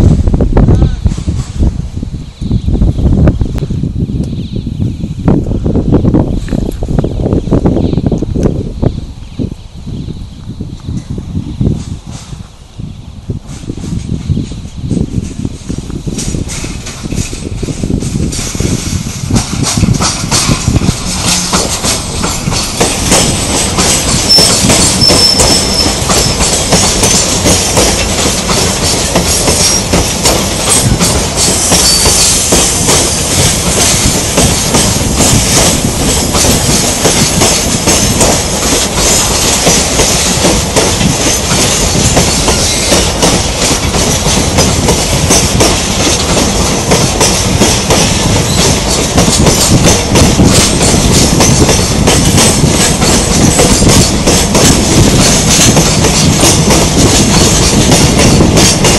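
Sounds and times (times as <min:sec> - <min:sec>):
train wheels rumbling on rails: 0:00.0 - 0:58.9
clickety-clack over rail joints: 0:13.4 - 0:58.9
high wheel squeal: 0:23.9 - 0:26.8, 0:29.3 - 0:30.0, 0:30.8 - 0:32.5, 0:42.2 - 0:43.1.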